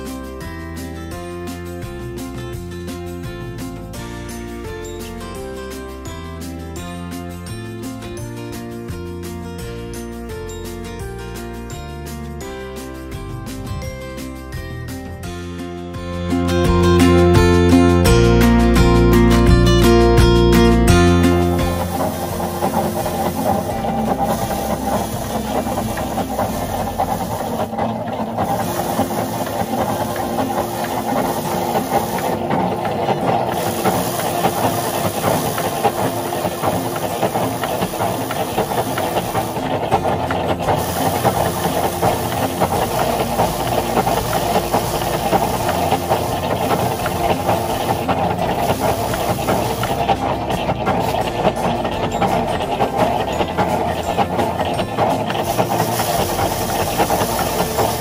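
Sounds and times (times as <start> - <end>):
rice thresher drum spinning: 0.0 - 58.0.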